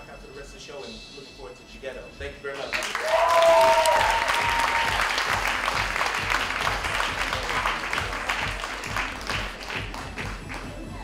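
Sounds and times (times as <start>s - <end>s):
music playing: 0.0s - 11.0s
audience applauding: 2.7s - 10.8s.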